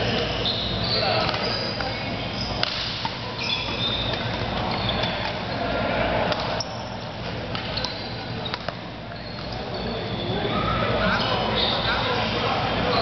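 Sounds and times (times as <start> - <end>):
shoe squeaks on court floor: 0.1 - 2.7, 3.3 - 5.6, 7.6 - 12.3
racket hitting shuttlecock: 2.6 - 3.3.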